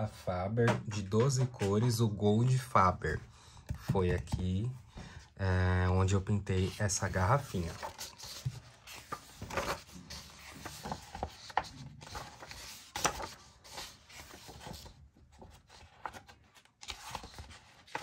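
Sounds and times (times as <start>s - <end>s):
paper pages rustling: 6.6s - 18.0s.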